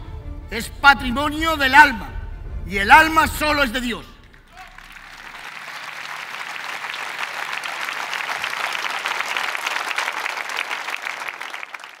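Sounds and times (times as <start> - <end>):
audience applauding: 4.3 - 12.0.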